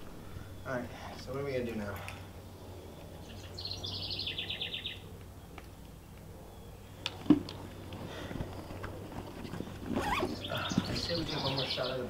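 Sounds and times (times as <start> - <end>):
faint outdoor ambience: 0.0 - 12.0
bird trilling: 2.7 - 5.1.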